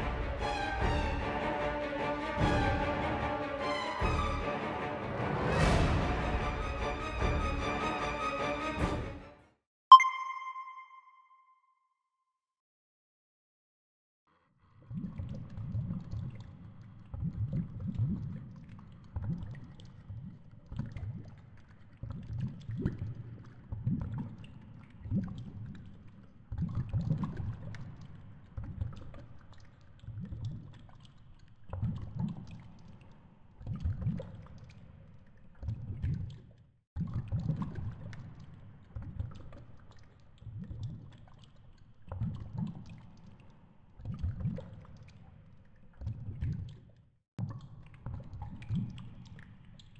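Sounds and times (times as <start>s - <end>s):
underwater rushing flow: 0.0s - 3.2s.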